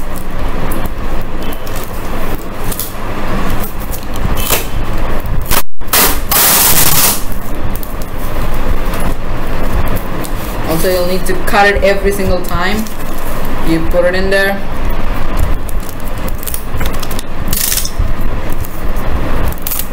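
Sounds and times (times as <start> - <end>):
crinkly tape handling: 0.0 - 11.4, 15.2 - 19.9
steady low rumble: 0.0 - 19.9
packing tape pulled off roll: 0.8 - 4.8, 5.4 - 8.2, 19.5 - 19.9.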